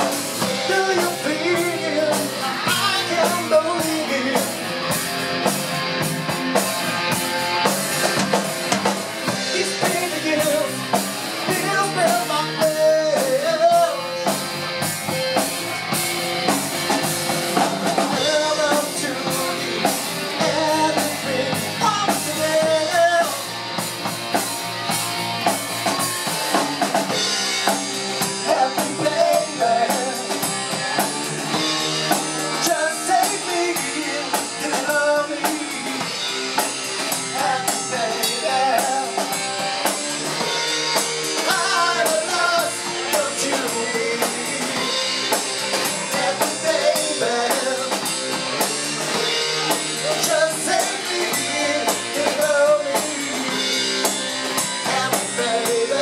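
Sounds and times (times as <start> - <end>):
man singing: 0.0 - 4.6, 9.2 - 14.4, 17.8 - 23.8, 27.6 - 31.5, 32.4 - 39.9, 41.3 - 56.0
bass guitar: 0.0 - 56.0
drum kit: 0.0 - 56.0
electric guitars: 0.0 - 56.0.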